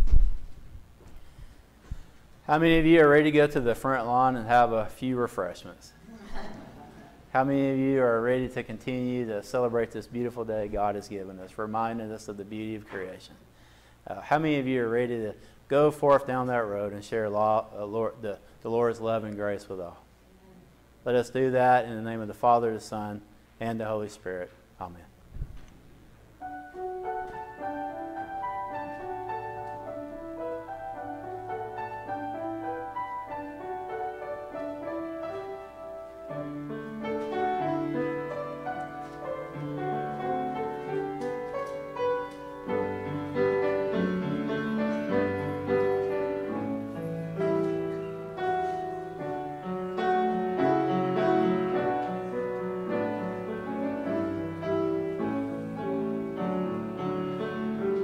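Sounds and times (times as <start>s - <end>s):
slow classical piano piece: 26.3s - 58.0s.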